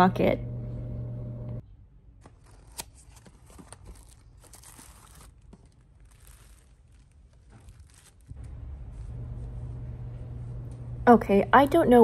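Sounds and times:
plastic bag crinkling: 2.3s - 9.5s.

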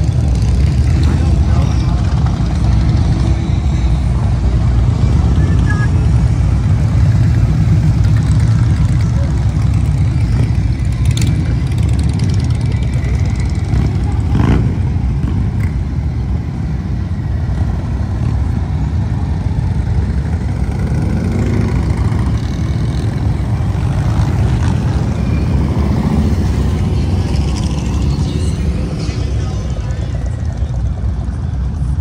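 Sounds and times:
motorcycle engines rumbling: 0.0s - 32.0s
motorcycle engine revving: 7.2s - 15.8s.

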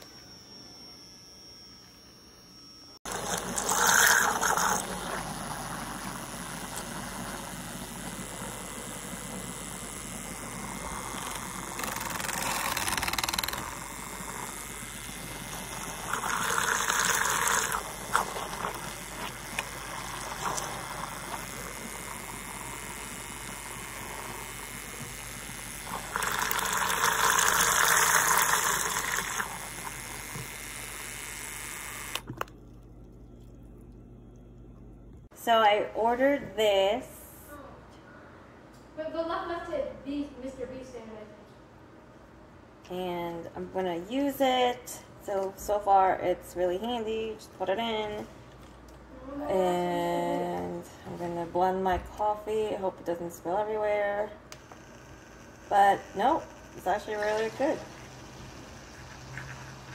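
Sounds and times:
milk frother whirring: 0.0s - 34.6s, 52.2s - 59.9s
liquid churning and swishing: 3.1s - 9.5s.

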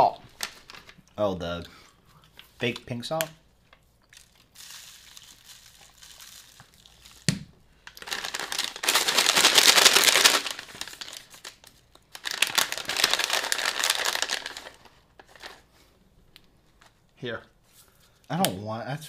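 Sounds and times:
plastic snack bag being shaken: 4.2s - 7.3s, 8.0s - 15.6s.

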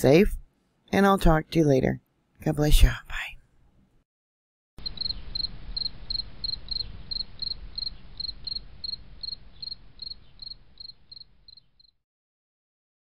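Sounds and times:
insect chirping: 4.8s - 12.0s.

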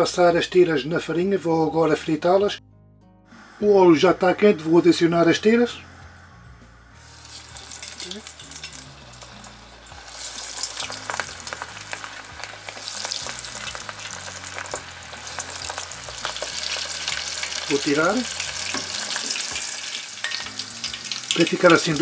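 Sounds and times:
seafood deep-frying in hot oil: 7.1s - 22.0s.

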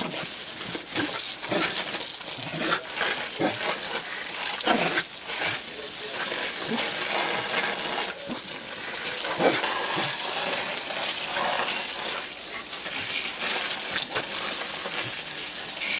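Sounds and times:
hose water spraying onto plants: 0.0s - 15.9s.

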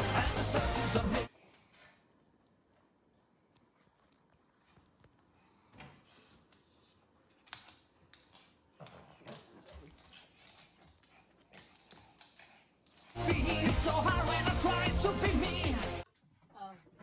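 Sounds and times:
dog claws on wooden floor: 7.3s - 13.2s.

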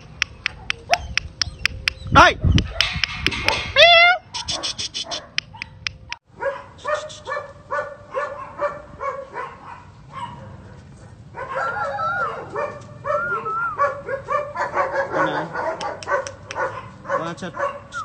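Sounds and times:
dog barking: 0.4s - 1.2s, 4.4s - 18.0s.

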